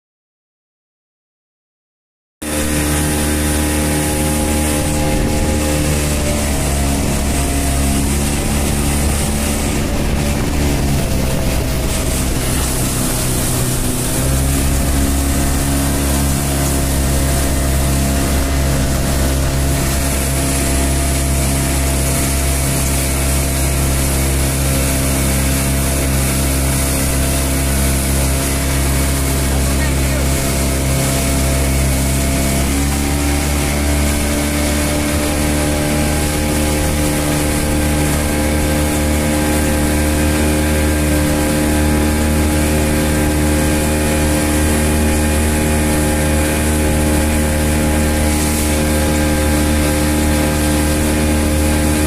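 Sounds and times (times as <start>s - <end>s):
speedboat engine running: 2.4s - 52.0s
water splashing against hull: 2.4s - 52.0s.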